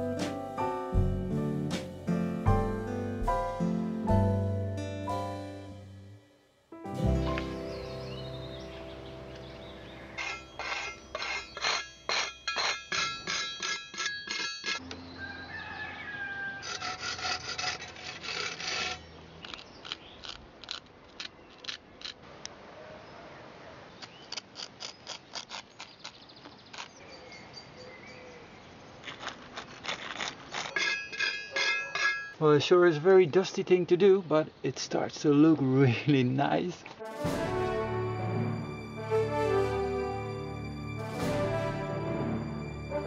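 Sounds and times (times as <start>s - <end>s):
metal blade scraping clay: 10.1s - 14.8s, 16.6s - 22.2s, 24.0s - 27.0s, 29.0s - 32.4s.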